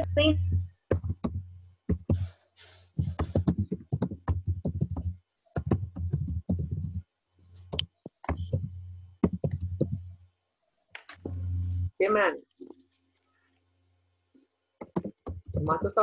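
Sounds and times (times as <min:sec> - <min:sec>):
low hum: 0:00.0 - 0:01.7, 0:11.1 - 0:12.0
computer keyboard typing: 0:03.0 - 0:07.0, 0:07.7 - 0:10.0, 0:14.8 - 0:16.0.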